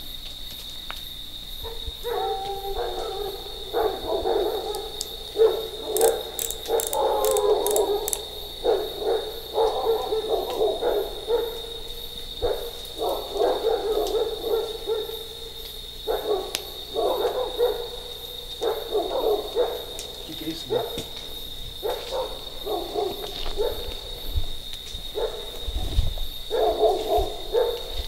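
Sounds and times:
high-pitched insect trill: 0.0s - 28.0s
sharp clicks: 5.9s - 8.3s.

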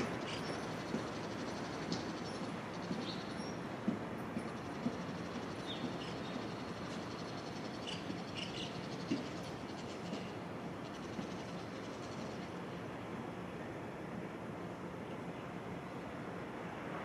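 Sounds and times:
small birds chirping: 0.0s - 12.6s
distant freight train rumble: 0.0s - 17.0s.

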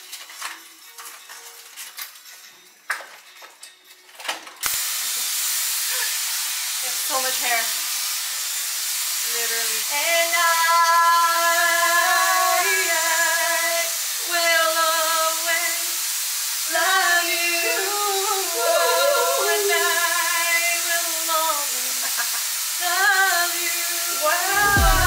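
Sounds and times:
hair styler blowing air: 4.7s - 25.0s
woman singing long notes: 9.9s - 15.8s, 16.7s - 21.6s, 22.8s - 25.0s.

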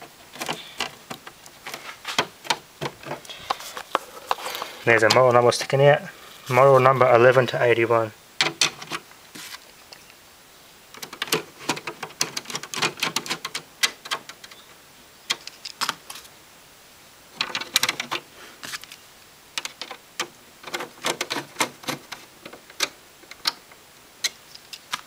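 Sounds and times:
screwdriver clicking and scraping: 0.3s - 5.2s.

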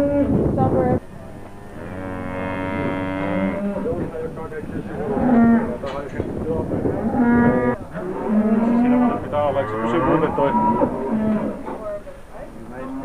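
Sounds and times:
cows mooing: 0.0s - 0.4s, 1.3s - 4.2s, 4.8s - 5.9s, 6.7s - 11.8s.

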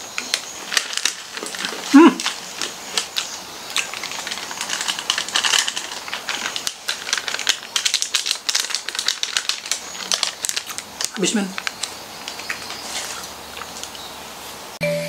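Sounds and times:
foil packet crinkling: 0.0s - 14.1s
small candy balls pouring into hand: 0.7s - 12.5s.

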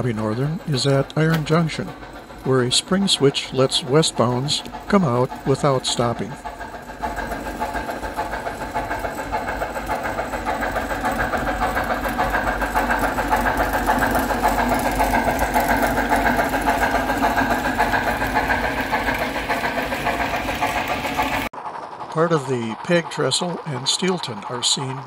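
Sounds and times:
model train running: 0.0s - 25.0s.

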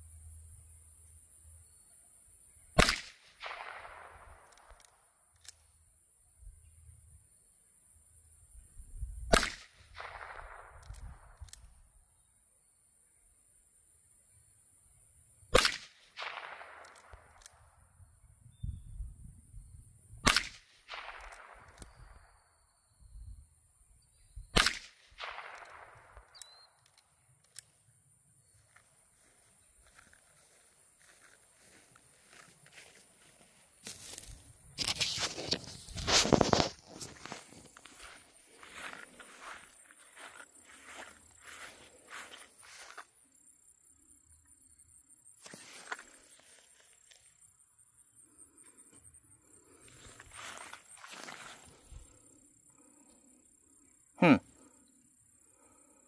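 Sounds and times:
gunshot echo: 2.8s - 4.4s, 9.3s - 10.9s, 15.5s - 17.3s, 20.2s - 22.0s, 24.5s - 26.2s
rifle shot: 2.8s - 4.7s, 9.3s - 11.3s, 15.5s - 17.4s, 20.2s - 22.1s, 24.5s - 26.4s.

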